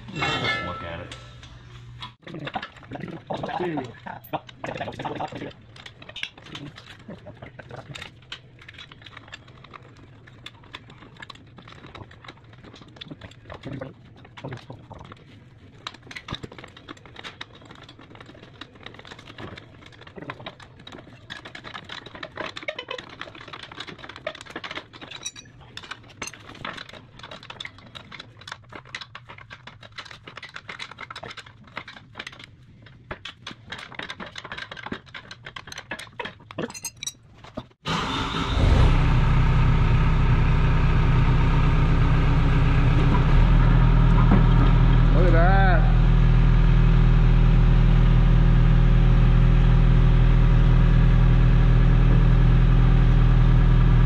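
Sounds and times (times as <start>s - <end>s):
light metallic clinks and taps: 36.6s - 37.2s
diesel engine running: 37.9s - 54.0s
low hum: 38.4s - 54.0s.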